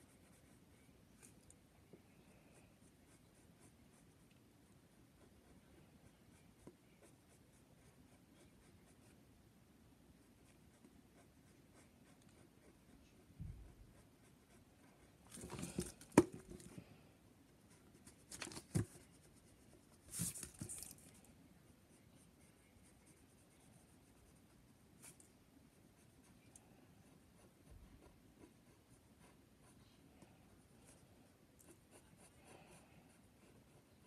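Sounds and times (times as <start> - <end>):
pencil scratching on paper: 0.0 - 0.7, 2.6 - 4.2, 5.1 - 9.2, 10.2 - 16.7, 21.7 - 29.9, 31.6 - 34.0.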